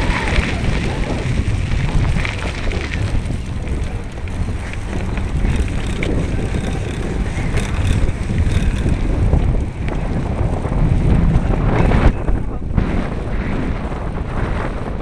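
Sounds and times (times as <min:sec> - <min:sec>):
wind buffeting microphone: 0:00.0 - 0:15.0
faint rattling ticks: 0:01.8 - 0:10.3.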